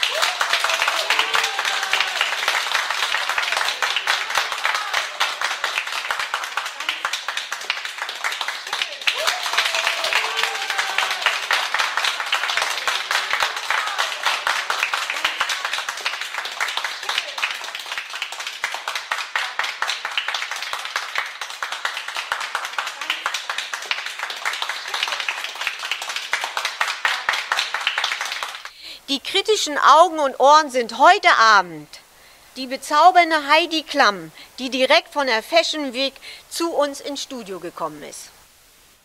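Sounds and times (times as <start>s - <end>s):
audience applauding: 0.0s - 28.8s.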